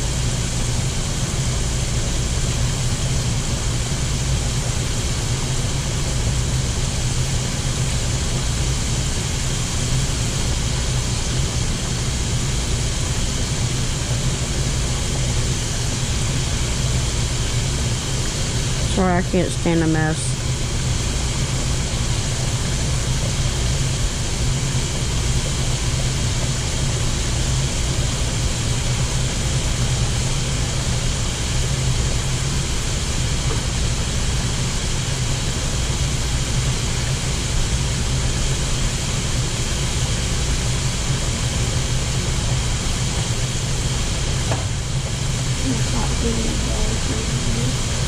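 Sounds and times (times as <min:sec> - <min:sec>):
oil sizzling in deep fryer: 0:00.0 - 0:48.0
low hum: 0:14.8 - 0:22.8.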